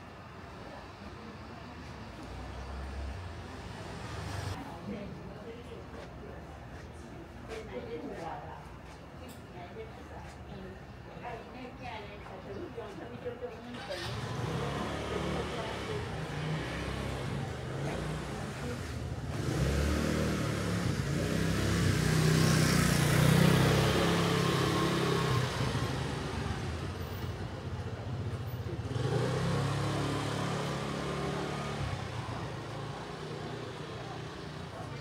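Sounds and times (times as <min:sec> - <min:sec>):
vehicle engine passing by: 0:02.2 - 0:04.6, 0:13.7 - 0:35.0.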